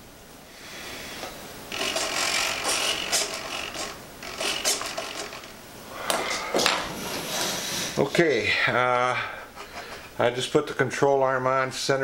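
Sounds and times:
servos whirring: 0:01.7 - 0:05.7.

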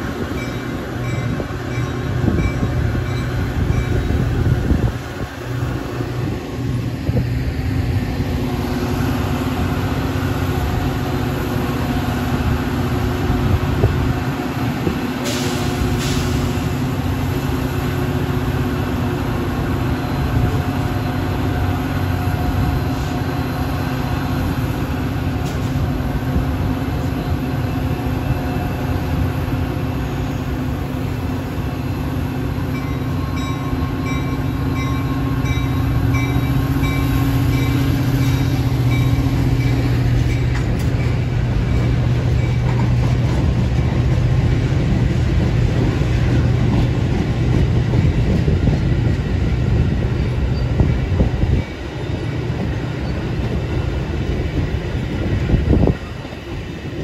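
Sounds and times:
crossing bell ringing: 0:00.0 - 0:04.4, 0:32.6 - 0:43.0
train wheels rumbling on rails: 0:00.0 - 0:57.0.

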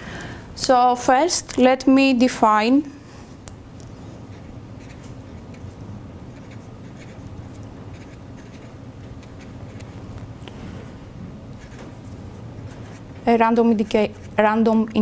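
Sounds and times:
steady low hum: 0:00.0 - 0:15.0
pen writing on paper: 0:06.3 - 0:07.2, 0:07.9 - 0:08.7.

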